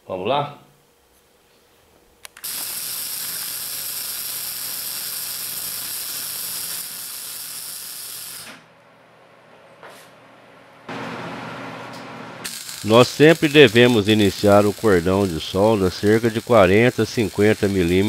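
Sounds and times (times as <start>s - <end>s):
welding arc sizzling crackle: 2.3s - 8.6s, 12.4s - 18.0s.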